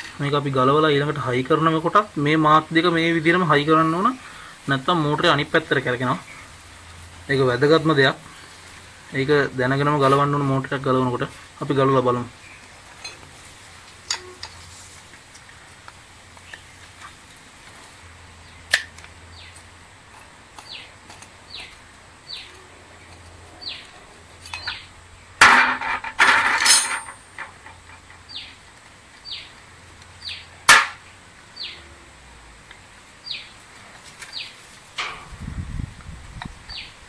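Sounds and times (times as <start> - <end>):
bird chirping: 18.4 - 19.6, 20.6 - 25.4, 27.9 - 28.6, 29.2 - 29.6, 30.2 - 30.6, 31.6 - 31.9, 33.2 - 33.6, 36.7 - 37.0
metal parts rattling clatter: 25.4 - 28.0
metal clinks: 25.7 - 28.0.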